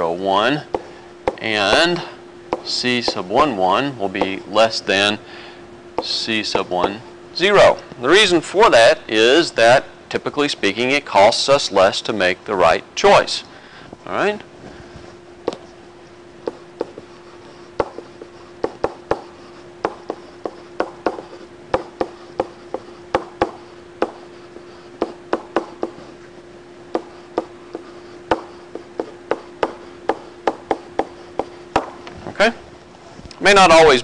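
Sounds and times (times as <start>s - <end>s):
faint hum: 0.0s - 34.0s
stylus tapping on tablet: 16.4s - 17.0s, 17.8s - 24.2s, 25.0s - 26.0s, 26.9s - 32.0s.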